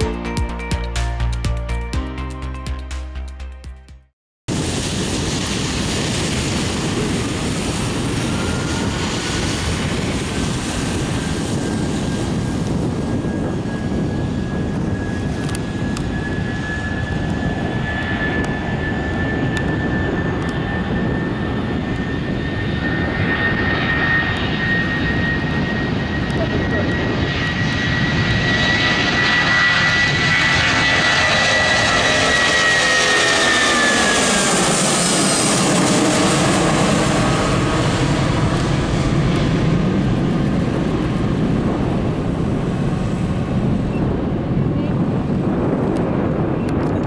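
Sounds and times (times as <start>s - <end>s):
music: 0.0s - 4.1s
jet engines roaring at takeoff: 4.5s - 47.0s
thin rising engine whine: 4.6s - 44.0s.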